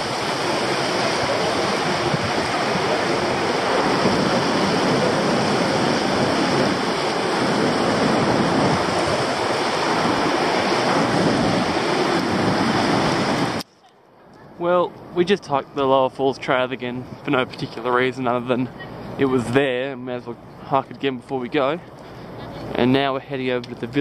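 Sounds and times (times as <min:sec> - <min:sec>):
waterfall rushing: 0:00.0 - 0:13.6.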